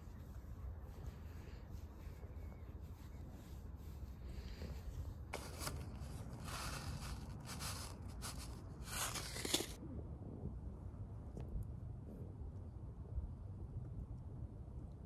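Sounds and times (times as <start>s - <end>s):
low steady rumble: 0.0s - 15.0s
paper packet rustling: 5.4s - 9.8s.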